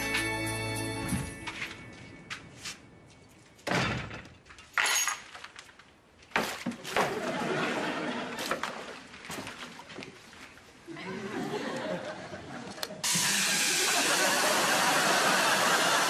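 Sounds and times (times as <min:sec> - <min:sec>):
footsteps: 0:01.1 - 0:03.6, 0:08.3 - 0:10.8.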